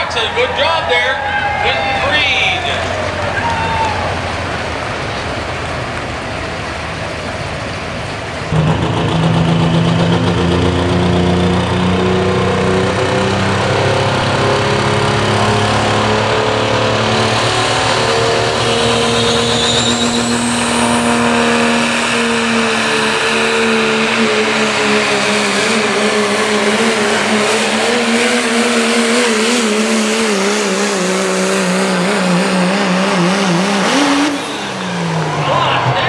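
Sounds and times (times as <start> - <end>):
diesel truck engine at full throttle: 0.0 - 36.0
high rising whine: 6.2 - 36.0.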